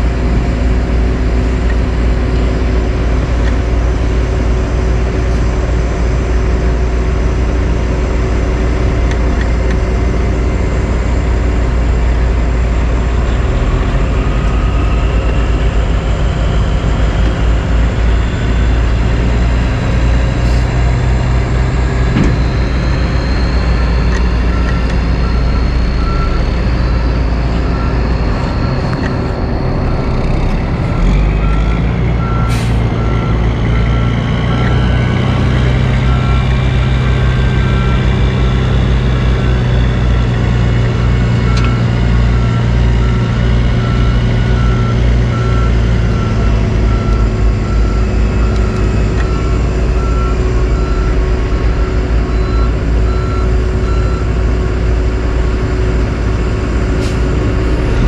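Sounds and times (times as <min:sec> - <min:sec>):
diesel truck engines rumbling: 0:00.0 - 0:58.0
backup alarm beeping: 0:21.9 - 0:34.8, 0:43.8 - 0:54.4.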